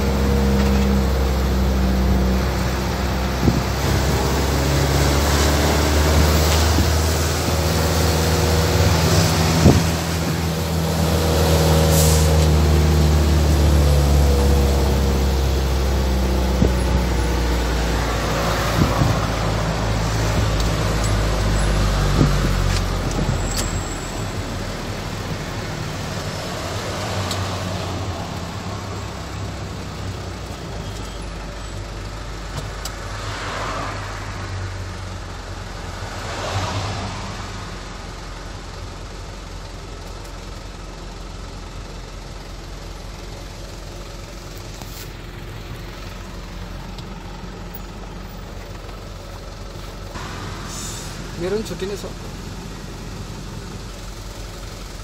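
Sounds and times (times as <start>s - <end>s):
car engine and road noise: 0.0s - 55.0s
vehicles swishing past: 2.1s - 31.8s, 32.5s - 38.4s, 49.7s - 53.9s.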